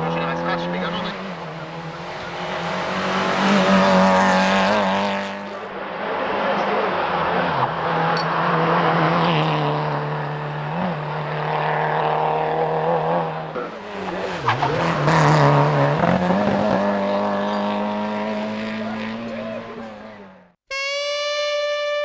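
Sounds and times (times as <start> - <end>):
rally car engine at high revs: 0.0 - 22.0.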